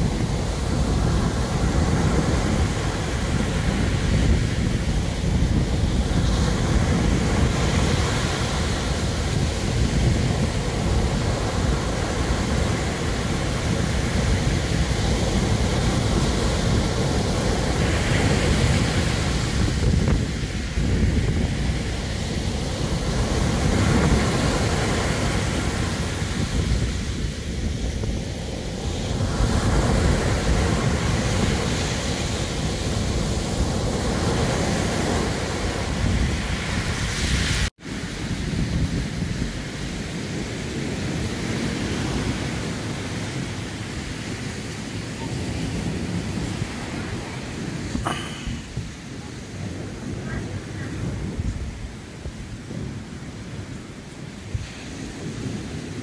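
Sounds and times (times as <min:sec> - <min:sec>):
surf breaking on shingle beach: 0:00.0 - 0:56.0
wind rumbling on microphone: 0:00.0 - 0:56.0.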